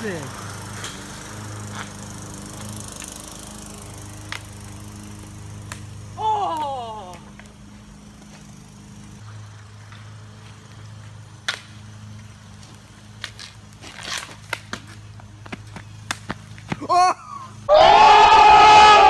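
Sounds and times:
steady low hum: 0.0 - 17.7
hockey stick and ball knocking: 13.2 - 16.9.

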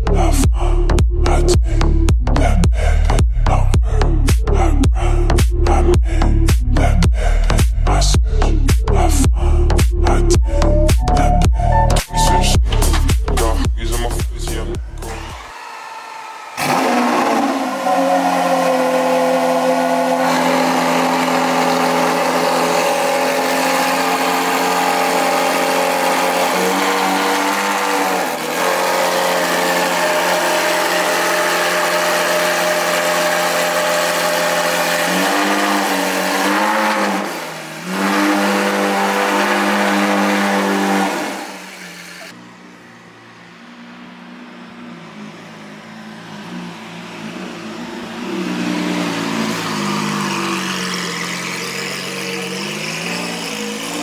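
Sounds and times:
car engine starting and idling: 5.9 - 15.5, 16.6 - 54.0
faint engine sound: 16.3 - 54.0.

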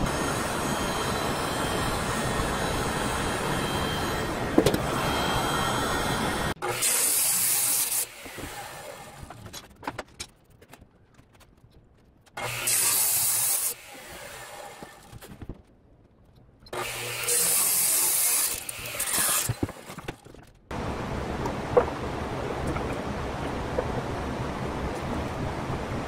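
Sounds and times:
saw motor low hum: 0.0 - 6.8
saw blade cutting wood: 0.0 - 9.4, 12.4 - 15.2, 16.7 - 20.1.

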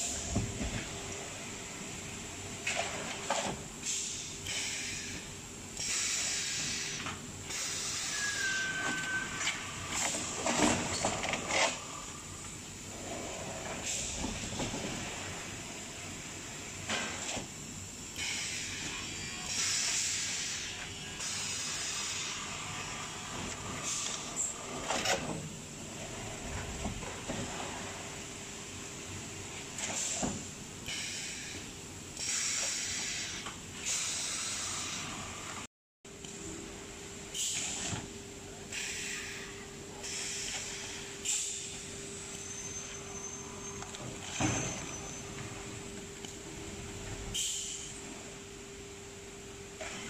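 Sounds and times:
pneumatic air hissing: 3.8 - 12.0, 13.8 - 14.6, 18.2 - 22.9, 23.6 - 25.3, 29.8 - 35.4, 37.3 - 38.0, 38.7 - 45.2, 47.3 - 48.0
compressed air hisses: 5.8 - 8.8, 18.2 - 22.8, 32.2 - 35.4, 38.7 - 41.7.

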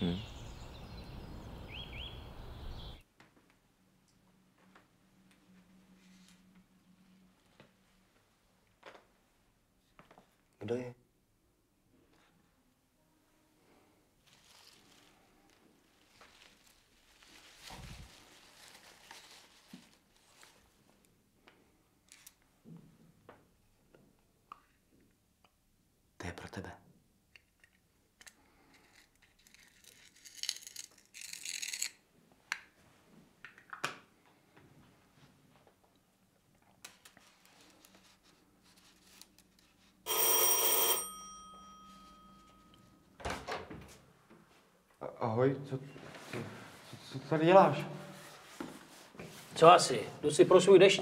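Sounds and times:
electric doorbell ringing: 40.1 - 42.9.

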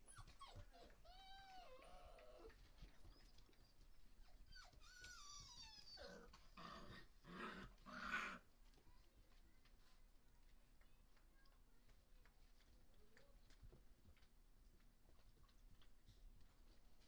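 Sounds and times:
puppies whining and yelping: 0.0 - 6.6.

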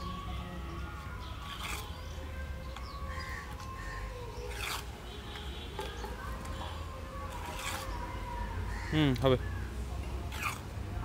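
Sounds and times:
trowel scraping mortar: 1.4 - 2.1, 4.4 - 4.9, 7.3 - 8.0, 10.3 - 10.6.

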